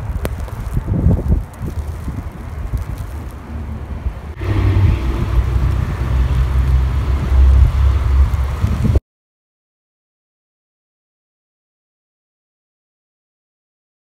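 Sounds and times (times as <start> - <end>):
wind buffeting microphone: 0.0 - 9.0.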